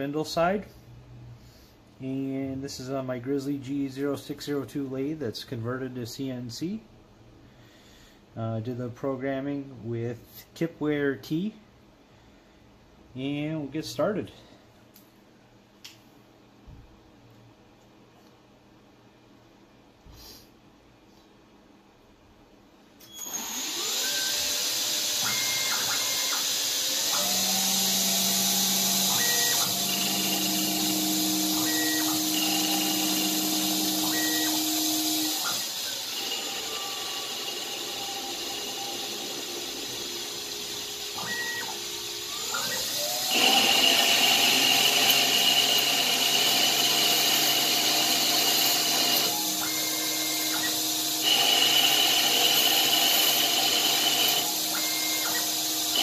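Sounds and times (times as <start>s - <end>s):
machine whine: 23.1s - 56.0s
lathe cutting metal: 25.0s - 56.0s.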